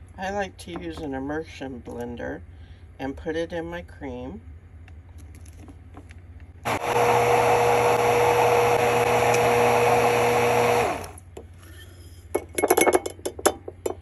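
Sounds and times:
immersion blender motor: 0:06.6 - 0:11.2.

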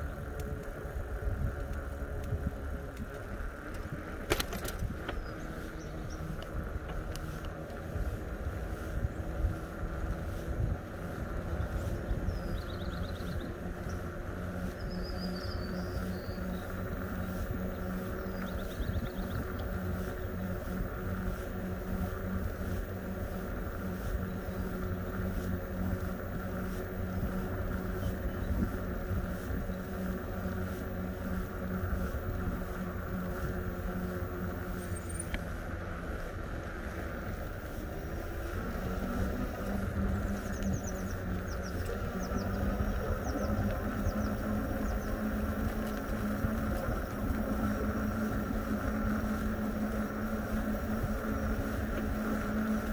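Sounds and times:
electric bike motor humming: 0:00.0 - 0:52.9
wind and road rumble: 0:00.0 - 0:52.9.

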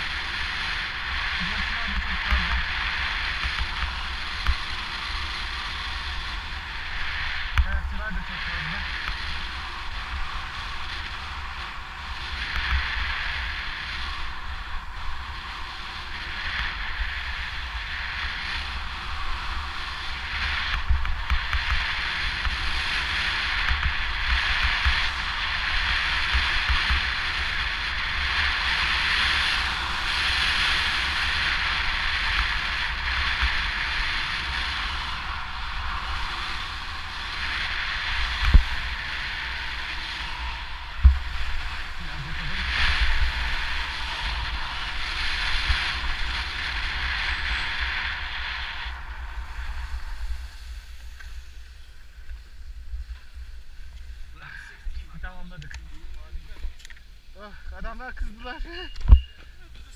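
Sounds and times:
skis hissing on snow: 0:00.0 - 0:58.9
wind buffeting microphone: 0:00.0 - 0:59.9.

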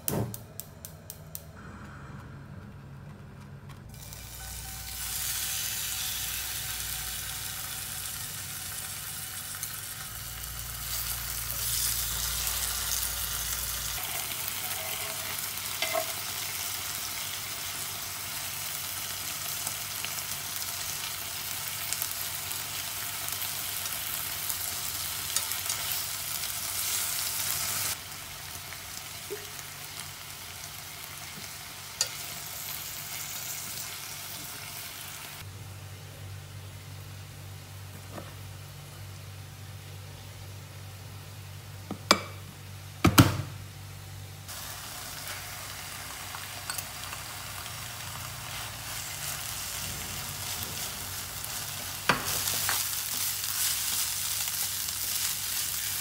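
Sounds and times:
food sizzling in frying pan: 0:03.9 - 0:35.5, 0:44.5 - 0:56.0.

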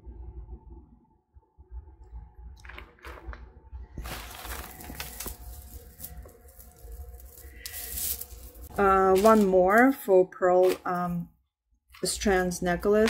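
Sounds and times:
jewelry rustling and clicking: 0:04.0 - 0:09.9.

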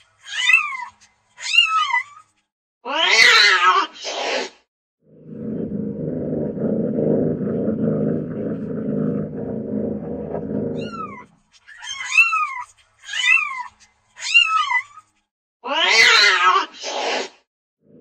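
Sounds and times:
cat yowling: 0:03.0 - 0:03.8, 0:10.8 - 0:15.0, 0:15.7 - 0:16.6
low rumble: 0:05.1 - 0:11.3.

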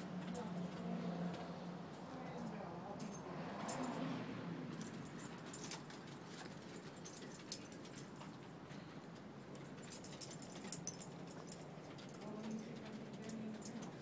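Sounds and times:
dog collar hardware jingling: 0:03.0 - 0:04.1, 0:04.7 - 0:14.0.

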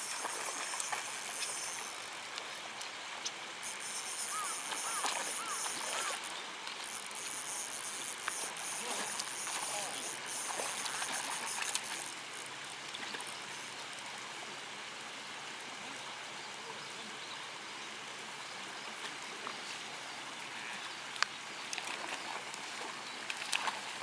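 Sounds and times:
fish splashing: 0:00.0 - 0:02.3, 0:03.6 - 0:13.8
running water: 0:00.0 - 0:24.0.

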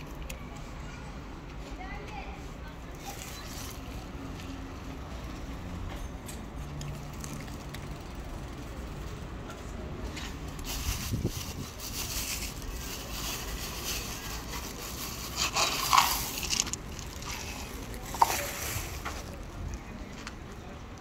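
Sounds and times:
plastic bag rustling: 0:10.4 - 0:19.8
dry cat food shaken out: 0:10.5 - 0:19.7.

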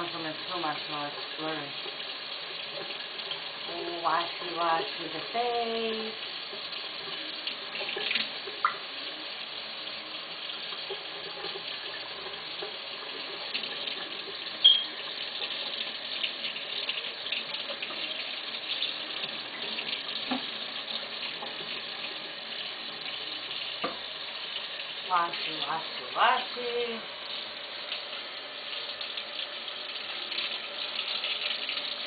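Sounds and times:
tap water running into sink: 0:00.0 - 0:32.0
short high squeak: 0:14.6 - 0:14.9.

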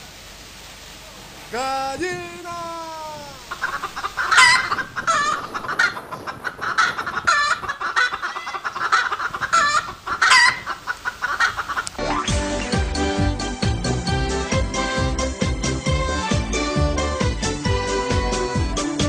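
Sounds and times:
hens squawking: 0:02.6 - 0:12.1
hens clucking: 0:03.4 - 0:12.1.

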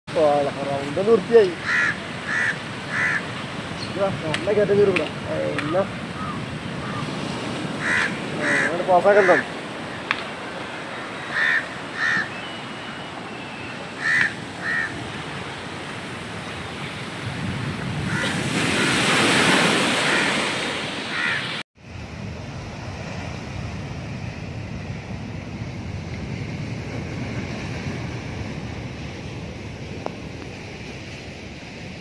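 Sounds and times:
wind buffeting microphone: 0:00.4 - 0:12.3, 0:14.2 - 0:19.8, 0:21.8 - 0:32.0
crow cawing: 0:01.6 - 0:03.4, 0:06.1 - 0:07.1, 0:07.7 - 0:10.2, 0:10.8 - 0:12.4, 0:13.9 - 0:15.0, 0:18.1 - 0:19.0, 0:20.0 - 0:20.4, 0:21.1 - 0:21.6.

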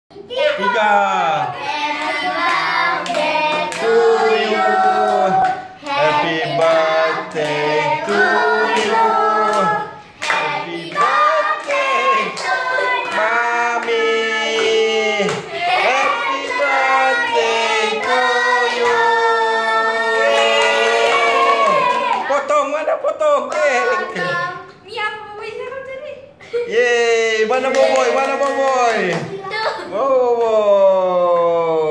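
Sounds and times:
group singing birthday song: 0:00.5 - 0:24.9
people clapping along: 0:01.9 - 0:22.3, 0:27.6 - 0:29.3.

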